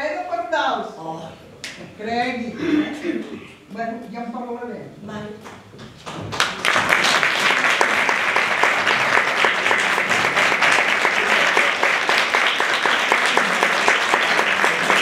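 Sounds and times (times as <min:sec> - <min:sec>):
audience applauding: 0:06.0 - 0:15.0.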